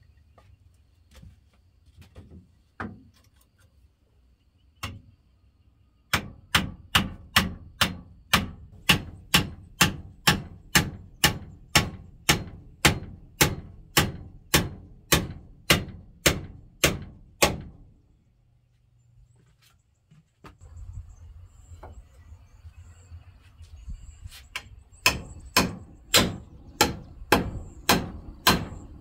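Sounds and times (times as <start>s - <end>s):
hammer striking wood: 6.1s - 17.8s, 25.0s - 28.9s.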